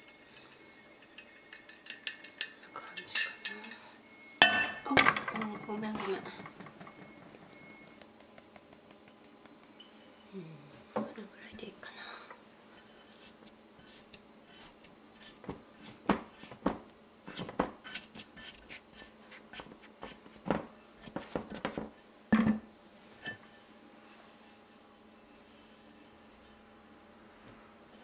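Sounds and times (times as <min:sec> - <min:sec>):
spatula scraping mixing bowl: 0:12.8 - 0:16.6.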